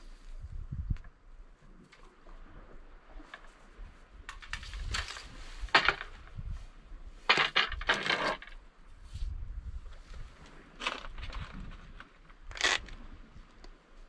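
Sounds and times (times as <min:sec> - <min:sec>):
wind rumble on microphone: 0:00.0 - 0:14.0
fishing gear clinking on rock: 0:04.3 - 0:06.3, 0:07.3 - 0:08.6.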